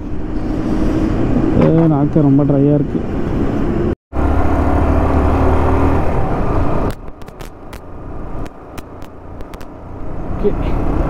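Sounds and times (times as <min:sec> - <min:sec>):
motorcycle engine and rushing air: 0:00.0 - 0:11.0
sharp clicks: 0:06.9 - 0:09.7.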